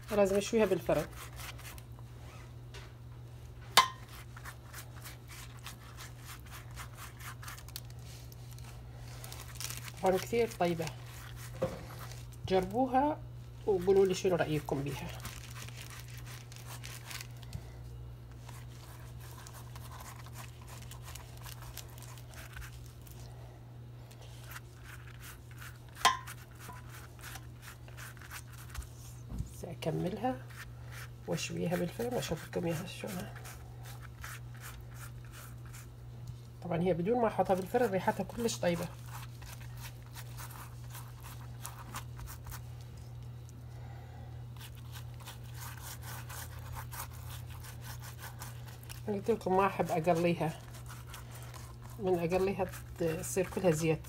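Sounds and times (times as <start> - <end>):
pastry brush scratchy strokes: 0.0 - 2.5, 4.0 - 13.0, 18.4 - 23.4, 24.2 - 29.2, 29.9 - 35.9, 37.2 - 43.2, 44.6 - 54.0.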